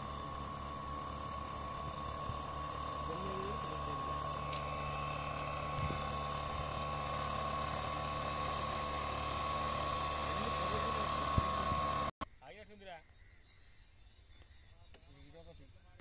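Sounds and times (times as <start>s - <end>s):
high fan whine: 0.0s - 12.2s
two-stroke engine running: 0.0s - 12.2s.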